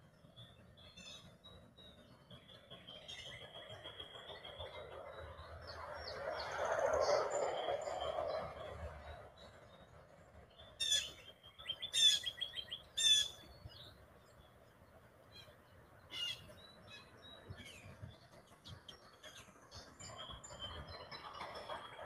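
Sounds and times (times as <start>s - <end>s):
loud harsh bird calls: 10.8s - 13.5s, 16.1s - 16.5s.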